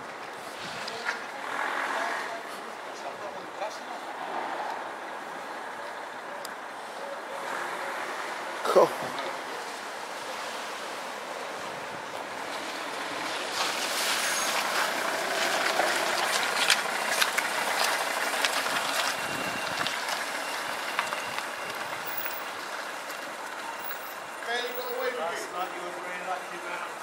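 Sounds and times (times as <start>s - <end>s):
strong wind gusting: 19.2s - 19.8s.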